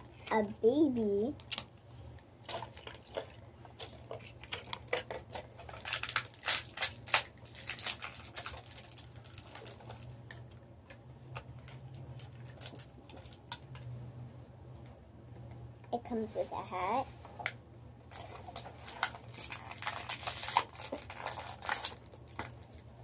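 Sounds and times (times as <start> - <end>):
plastic bag crinkling: 2.4 - 10.5, 11.6 - 13.8, 18.1 - 22.9.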